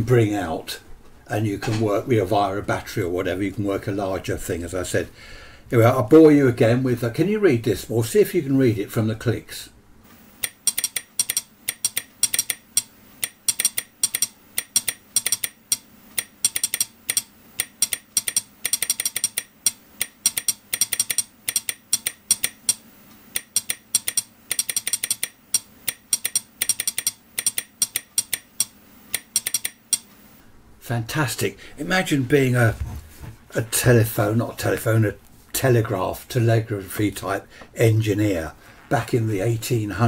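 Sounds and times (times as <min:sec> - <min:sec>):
telegraph sounder clicking morse code: 0:10.4 - 0:30.1.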